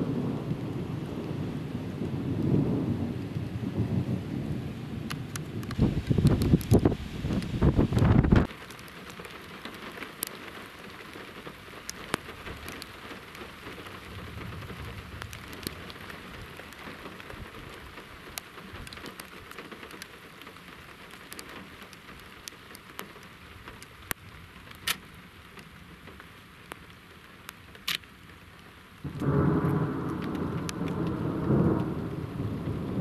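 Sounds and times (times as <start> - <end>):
thunder rumbling: 0.0 - 8.5, 13.9 - 17.6, 29.0 - 33.0
steady rain falling: 0.0 - 33.0
raindrops tapping: 5.0 - 33.0.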